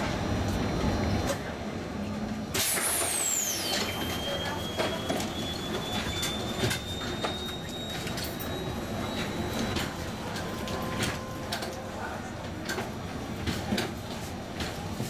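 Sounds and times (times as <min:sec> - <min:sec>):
tram whine over rumble: 0:00.0 - 0:15.0
high whistle: 0:02.8 - 0:09.8.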